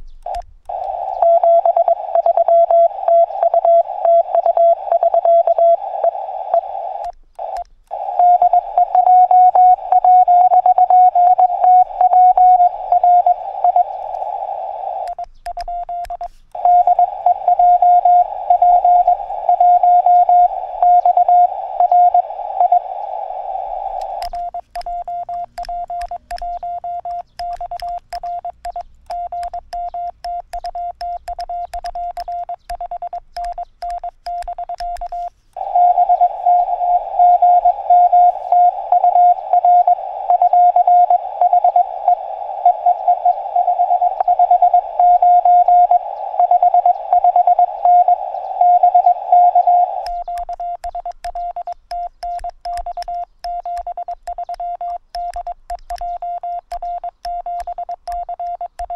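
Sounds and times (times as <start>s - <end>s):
faint clicks: 0.0s - 23.1s, 23.9s - 35.7s, 41.4s - 58.9s
morse code tone: 0.3s - 58.9s
radio band noise hiss: 0.7s - 15.4s, 16.1s - 26.5s, 35.0s - 50.5s.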